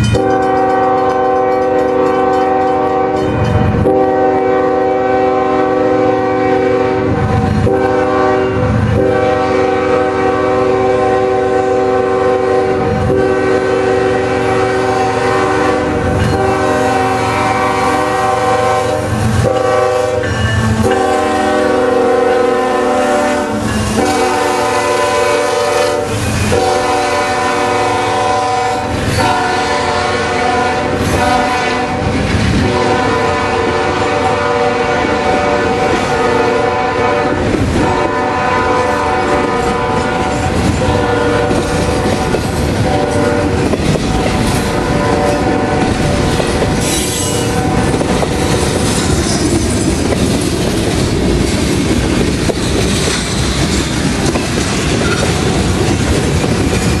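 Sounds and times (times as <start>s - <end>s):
train air horn blasts: 0.0s - 49.6s
wheel squeal: 46.8s - 47.5s.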